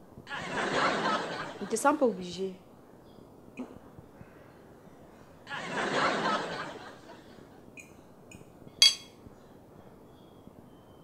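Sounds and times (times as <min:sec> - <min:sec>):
fork clinking on plate: 0:08.8 - 0:09.1.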